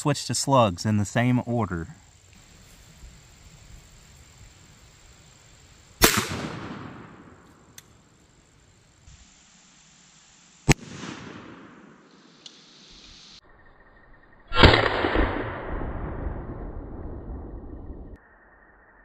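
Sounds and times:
shotgun blasts with echo: 6.0 - 7.8, 10.7 - 12.1, 14.5 - 16.2.

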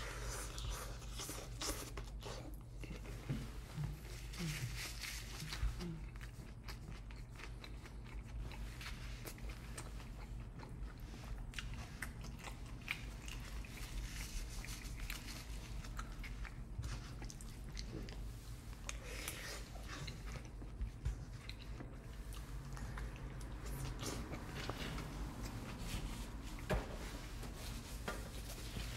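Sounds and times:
steady low hum: 0.0 - 28.9
chewing with wet mouth clicks: 5.6 - 14.0, 14.6 - 25.6.

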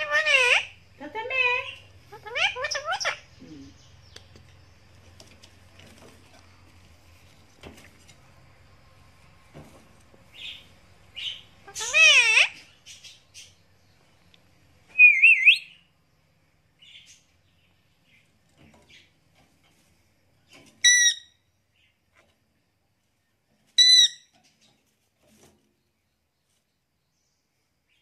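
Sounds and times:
parakeet sharp calls: 0.0 - 3.4, 10.4 - 13.5
parakeet whistling: 15.0 - 15.8.

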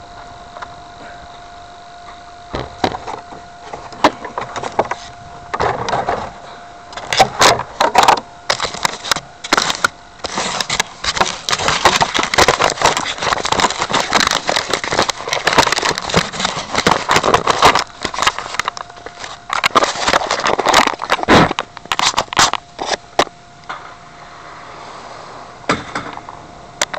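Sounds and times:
faint steady tone: 0.0 - 26.9
rubbing and crackling: 2.0 - 23.4.

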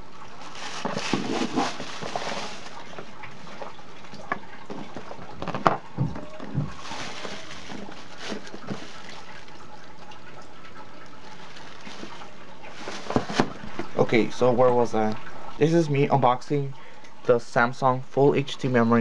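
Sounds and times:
cardboard and plastic bag rustling: 0.3 - 10.2, 10.9 - 14.2.

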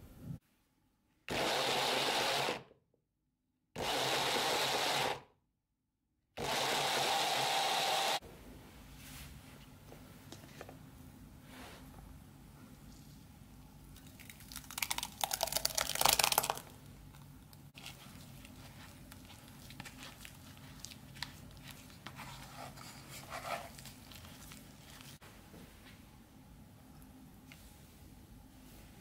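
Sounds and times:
wet pulp pouring into sieve: 14.1 - 16.6
spoon scraping pulp through mesh: 17.8 - 25.2.

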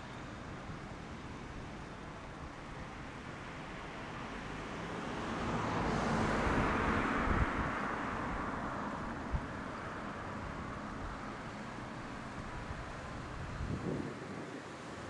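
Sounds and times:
car passing by: 3.6 - 15.0
wind buffeting microphone: 6.5 - 8.4, 12.3 - 15.0.

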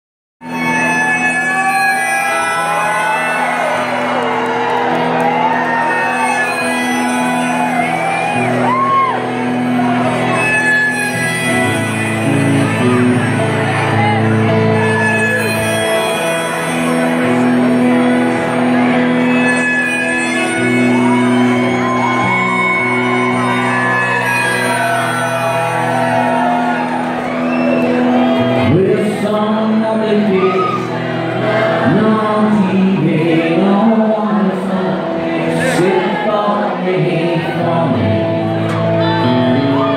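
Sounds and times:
electric guitar chords: 0.4 - 39.9
rock band playing live: 0.4 - 39.9
crowd whoops and shouts: 0.5 - 29.4, 30.0 - 32.0, 39.0 - 39.9.

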